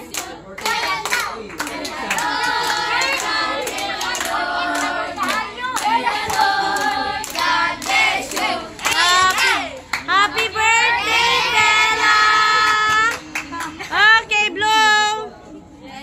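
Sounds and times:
hand-clapping: 0.0s - 10.5s
girls singing together: 0.0s - 13.2s.

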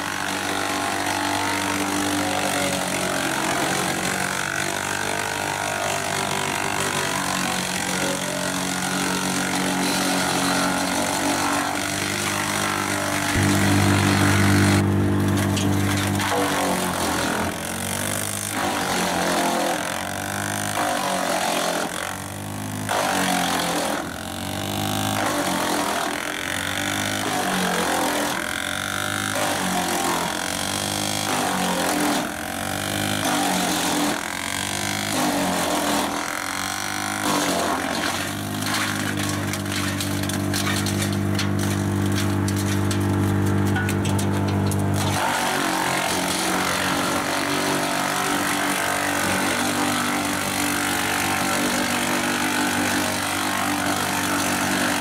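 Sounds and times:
machine engine running: 12.7s - 18.8s.

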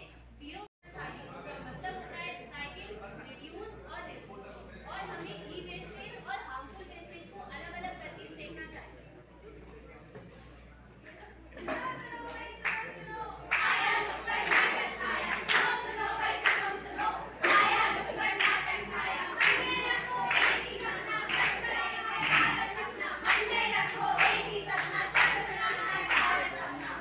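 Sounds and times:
group singing or chanting: 13.5s - 27.0s.

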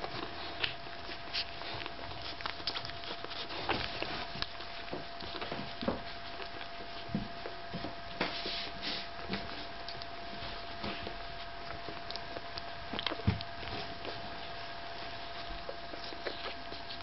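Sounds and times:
puppies suckling clicks and smacks: 0.0s - 17.0s
puppies squeaking: 10.0s - 17.0s.

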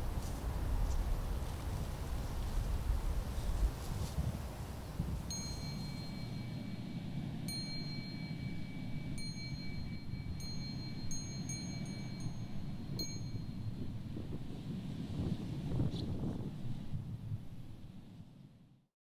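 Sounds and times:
small high-pitched bell ringing: 5.3s - 14.1s.

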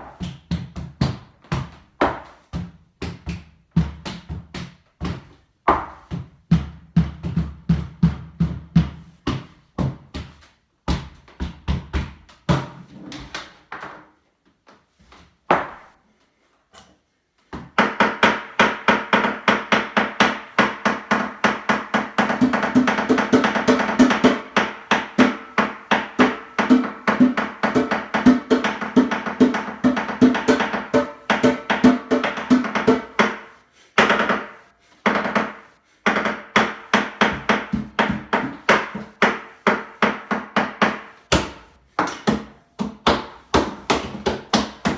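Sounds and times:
utensil drumming on worktop and sink: 17.8s - 34.5s, 36.0s - 44.9s.

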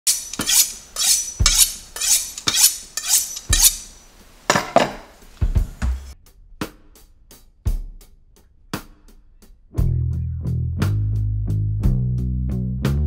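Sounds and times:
knife scraping on honing steel: 0.0s - 4.9s.

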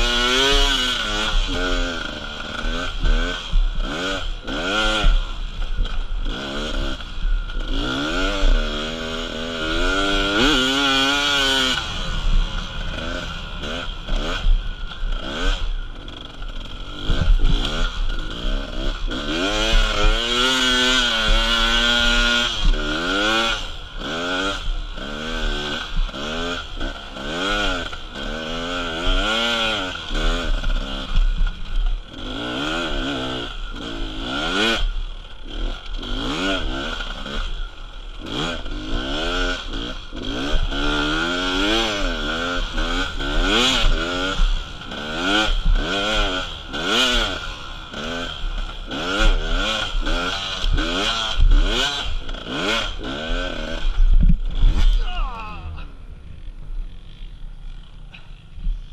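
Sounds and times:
motorcycle engine revving: 0.0s - 58.9s.

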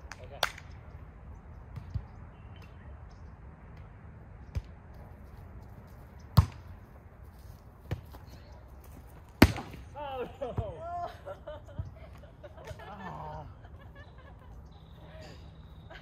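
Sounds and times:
volleyball hits: 6.4s - 6.6s, 9.3s - 9.9s.

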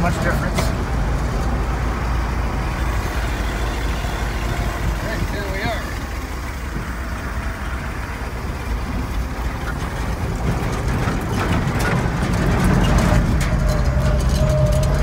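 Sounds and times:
truck engine running: 0.0s - 15.0s
rattling knocks: 9.0s - 15.0s.

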